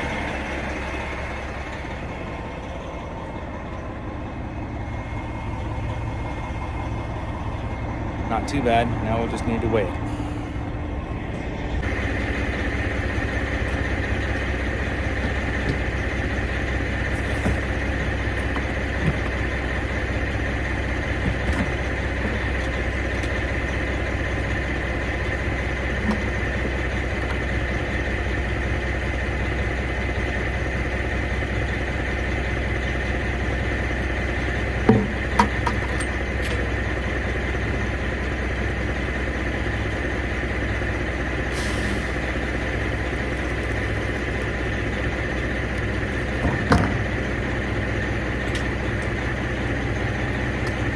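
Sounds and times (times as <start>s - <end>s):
high whine: 0.0s - 20.4s
truck engine idling: 0.0s - 50.9s.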